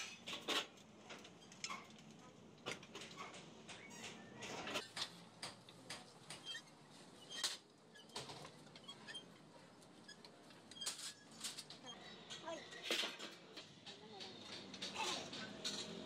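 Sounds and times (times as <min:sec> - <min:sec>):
metallic squeaks: 0:03.2 - 0:04.9, 0:06.3 - 0:12.9.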